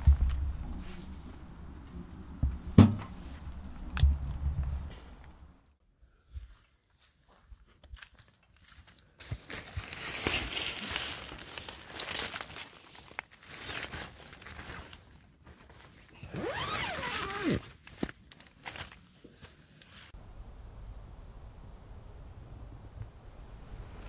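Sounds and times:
sleeping bag rustling: 9.4s - 20.2s.

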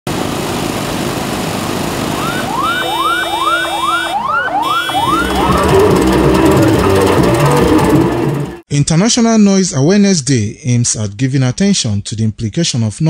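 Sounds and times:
street traffic noise: 0.1s - 8.6s
electronic siren wailing: 2.2s - 8.6s.

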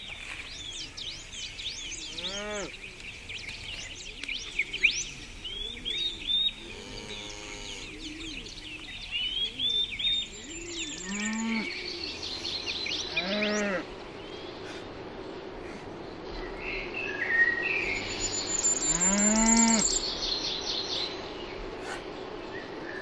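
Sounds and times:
birds chirping: 0.0s - 23.0s
cattle mooing: 6.6s - 8.0s, 11.0s - 11.8s, 13.1s - 13.9s.

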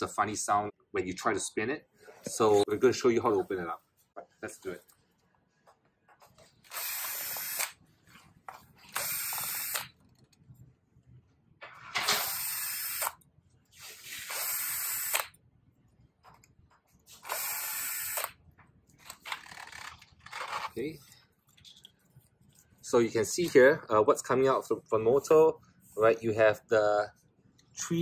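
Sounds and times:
cordless drill running: 6.6s - 7.8s, 8.9s - 9.9s, 12.1s - 13.2s, 14.1s - 15.3s, 17.2s - 18.3s.

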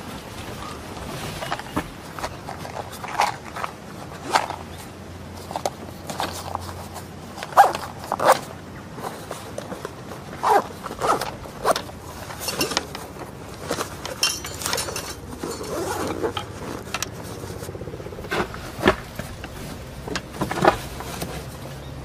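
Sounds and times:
fabric pouches scraping and rustling: 0.0s - 22.0s.

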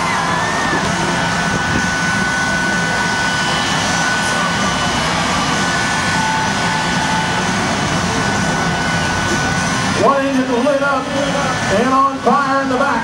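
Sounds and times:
jet engine whining roar: 0.0s - 13.0s.

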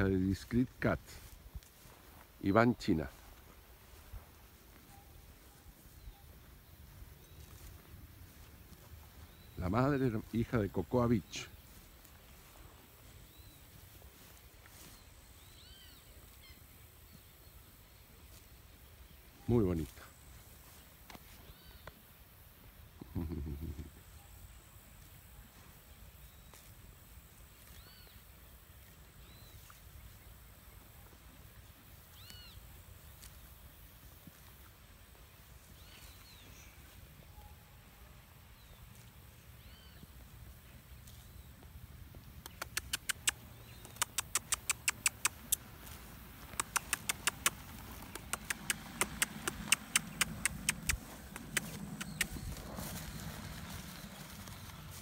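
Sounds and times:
horse tearing grass with teeth: 42.5s - 55.0s
short bird calls: 46.5s - 54.8s.

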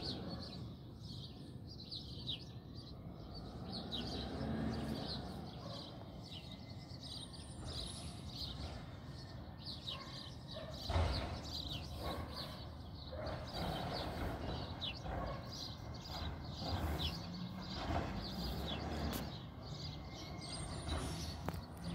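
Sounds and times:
small birds chirping: 0.0s - 21.9s.

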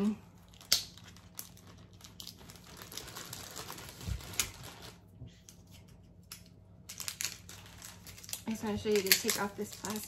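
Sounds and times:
plastic clicking and rustling: 6.3s - 10.0s.

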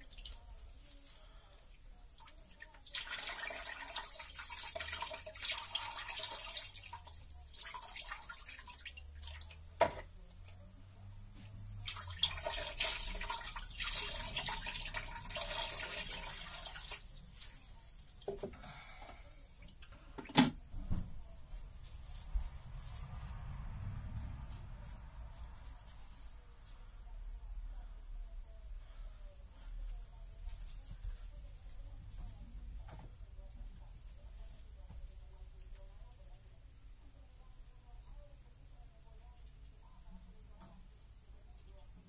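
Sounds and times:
water splashing into a basin: 2.1s - 10.6s, 11.6s - 18.6s.

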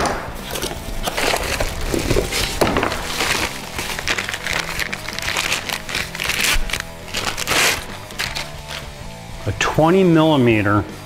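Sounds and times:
cardboard tearing: 0.4s - 9.0s
plastic wrapping crinkling: 0.4s - 9.0s.

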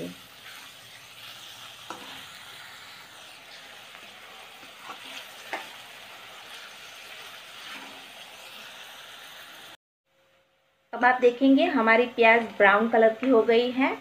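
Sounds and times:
onions sizzling in a wok: 0.0s - 9.8s, 11.2s - 14.0s
metal spoon scraping a wok: 0.3s - 8.6s.

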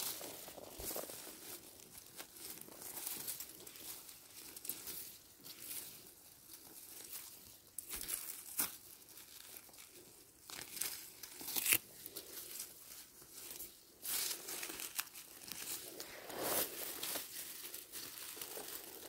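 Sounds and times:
dry vegetation rustling and crackling: 0.0s - 19.0s
twigs snapping: 10.5s - 12.2s.

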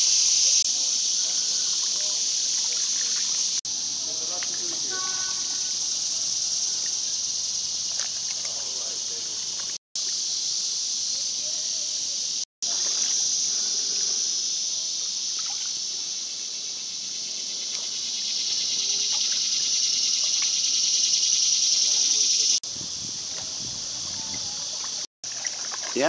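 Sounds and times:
insect chorus buzzing: 0.0s - 26.0s
water trickles from paddle: 1.6s - 3.4s, 24.3s - 26.0s.

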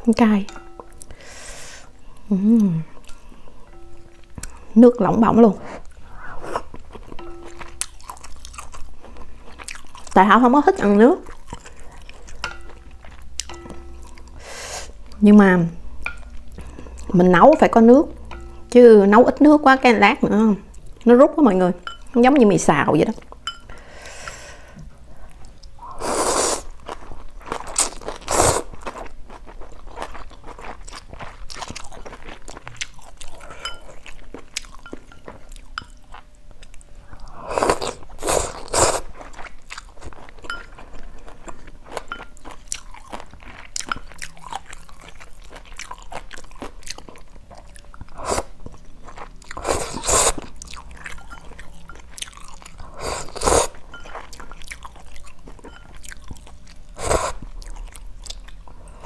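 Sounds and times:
chewing and crunching: 5.8s - 14.4s, 26.7s - 59.0s
slurping noodles: 49.6s - 50.5s, 52.9s - 53.8s.

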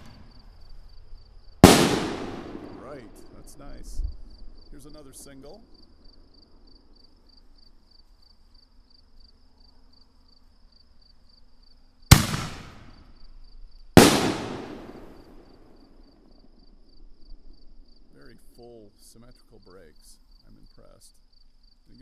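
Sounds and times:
fireworks shell booms: 0.0s - 0.6s, 1.6s - 4.1s, 12.1s - 13.2s, 14.0s - 16.3s.

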